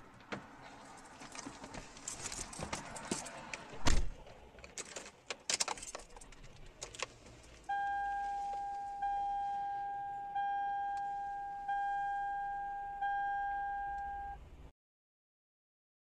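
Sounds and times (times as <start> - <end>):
sharp clicks and rattles: 4.5 - 7.6.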